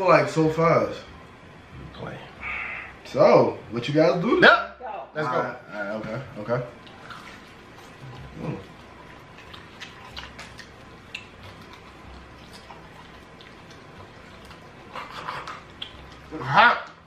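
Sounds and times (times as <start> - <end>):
people eating chicken wings: 6.7 - 17.0.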